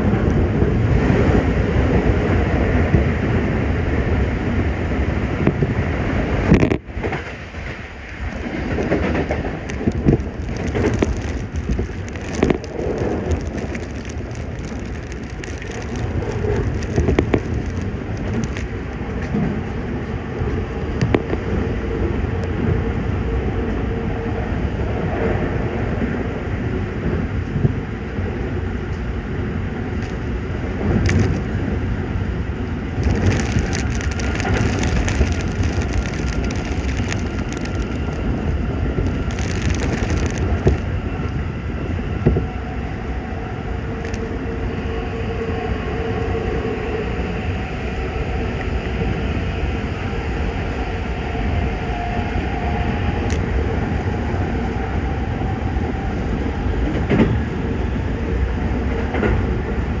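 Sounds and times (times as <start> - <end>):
rain crackling on carriage: 6.4 - 21.4, 30.0 - 31.6, 32.8 - 41.4, 44.0 - 44.3, 53.2 - 54.7.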